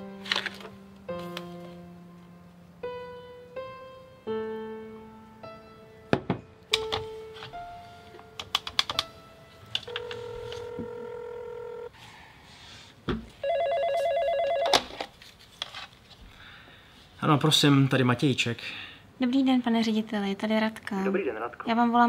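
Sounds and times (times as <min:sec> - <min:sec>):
telephone line clicks: 0:09.8 - 0:11.8
steady telephone tone: 0:09.9 - 0:11.9, 0:13.4 - 0:14.8
telephone ringing with warble: 0:09.9 - 0:11.9, 0:13.4 - 0:14.9.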